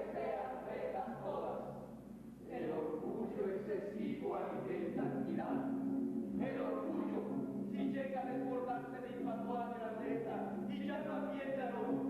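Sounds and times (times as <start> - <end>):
choir singing a cappella: 0.0 - 7.5.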